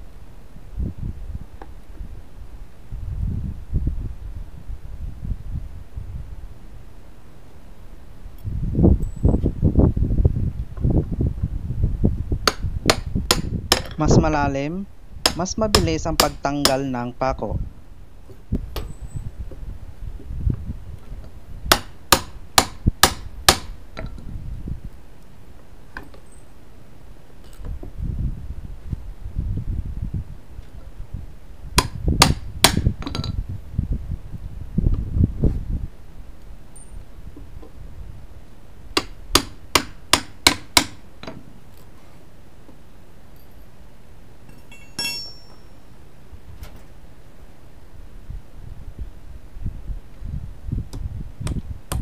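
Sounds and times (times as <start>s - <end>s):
ringing metallic clink: 9.0s - 9.4s, 18.8s - 19.4s, 26.1s - 26.6s, 43.3s - 43.8s, 44.5s - 46.0s
hammer striking steel pry bar: 12.4s - 14.0s, 15.2s - 17.0s, 21.7s - 23.7s, 31.8s - 33.2s, 39.0s - 41.4s, 44.5s - 45.8s.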